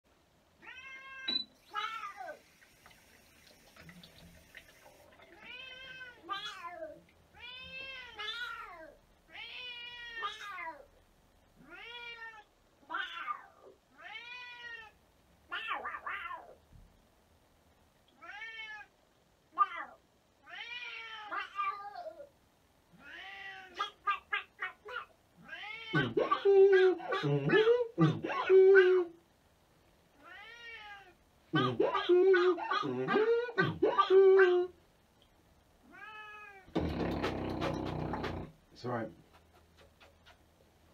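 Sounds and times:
cat meowing: 0:00.6 - 0:02.4, 0:05.4 - 0:10.9, 0:11.6 - 0:16.6, 0:18.2 - 0:18.9, 0:19.6 - 0:22.3, 0:23.0 - 0:27.7, 0:30.2 - 0:32.9, 0:35.8 - 0:36.8.

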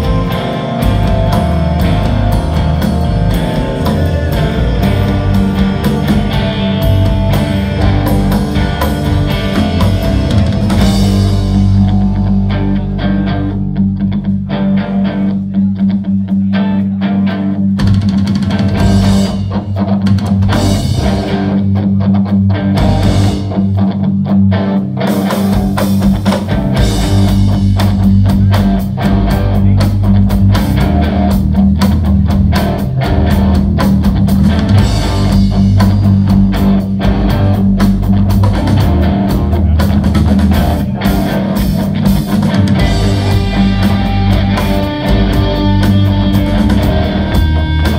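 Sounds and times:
low bass note: 0:00.0 - 0:14.1
drums: 0:00.0 - 0:47.9
electric guitar: 0:00.0 - 0:47.9.

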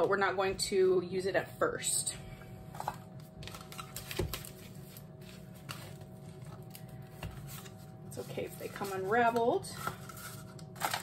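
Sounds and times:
cardboard wrapper rustling and crinkling: 0:03.1 - 0:11.0.

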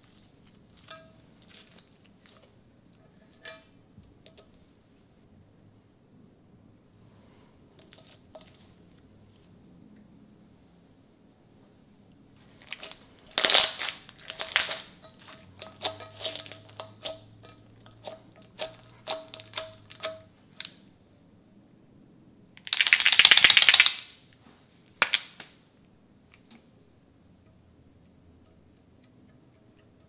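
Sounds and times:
slime crackling rapidly: 0:12.6 - 0:17.2, 0:22.7 - 0:24.0.

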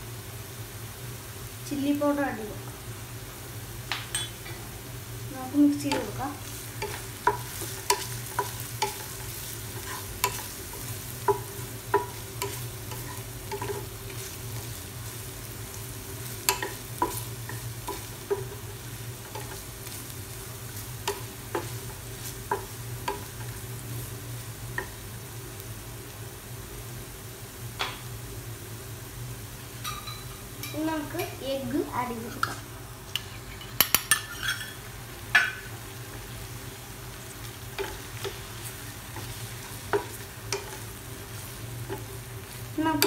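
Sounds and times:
food sizzling: 0:00.0 - 0:43.0
spatula scraping a pan: 0:05.9 - 0:14.7, 0:32.3 - 0:34.8
spatula tapping a pan: 0:06.8 - 0:14.3, 0:16.2 - 0:20.0, 0:21.0 - 0:23.5, 0:24.7 - 0:25.0, 0:35.3 - 0:35.7, 0:37.7 - 0:38.4, 0:39.1 - 0:41.0.

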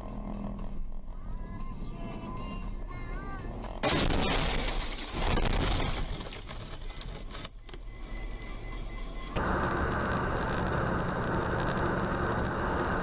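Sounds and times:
car crash: 0:03.8 - 0:07.0.

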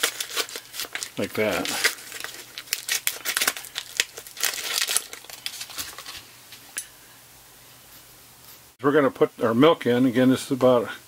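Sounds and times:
plastic package crinkling: 0:00.0 - 0:06.3.

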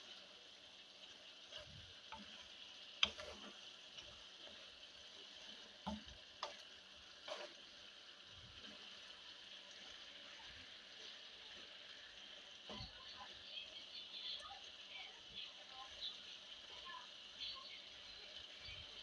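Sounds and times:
chicken sizzling in a frying pan: 0:00.0 - 0:19.0
wooden spatula knocking on pan: 0:05.8 - 0:06.6.

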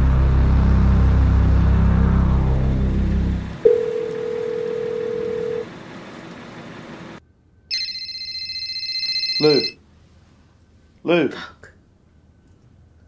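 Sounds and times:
loud low droning rumble: 0:00.0 - 0:03.7
phone ringtone: 0:03.6 - 0:05.6, 0:07.7 - 0:09.8
telephone tone: 0:03.6 - 0:05.7, 0:07.7 - 0:09.8.

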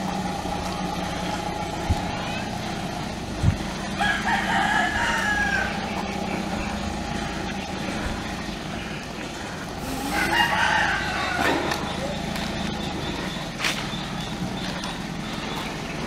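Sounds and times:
steady low hum: 0:00.0 - 0:16.0
rooster crowing: 0:04.0 - 0:06.0, 0:09.9 - 0:12.0.

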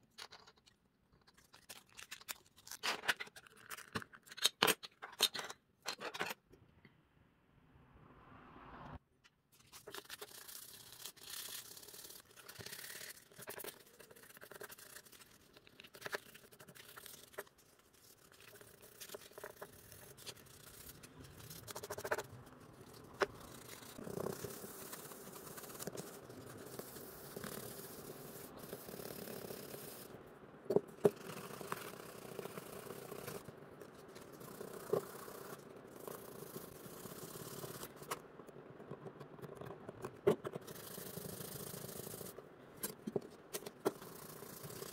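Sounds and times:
hand scrubbing a model car: 0:09.7 - 0:30.1.

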